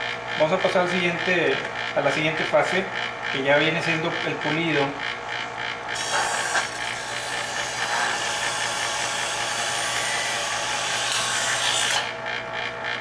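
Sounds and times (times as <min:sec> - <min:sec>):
motor hum: 0:00.0 - 0:13.0
electric knife sharpener grinding: 0:05.0 - 0:13.0.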